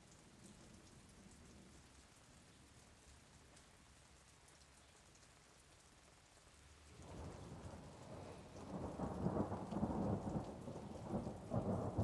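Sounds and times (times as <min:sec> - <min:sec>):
steady rain: 0:00.0 - 0:12.0
thunder rolling: 0:07.0 - 0:12.0.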